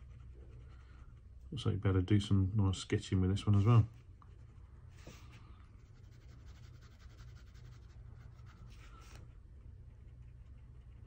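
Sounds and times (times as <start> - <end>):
pen scratching on paper: 5.8 - 8.8.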